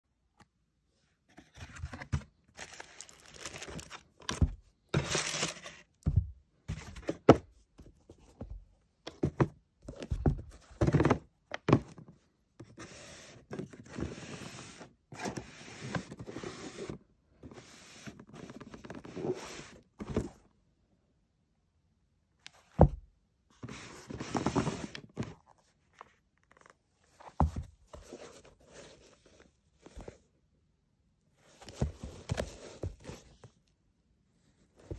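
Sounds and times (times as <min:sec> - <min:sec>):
cardboard box rustling and scraping: 0:01.3 - 0:05.9, 0:12.7 - 0:20.4, 0:23.6 - 0:30.2, 0:31.5 - 0:33.5.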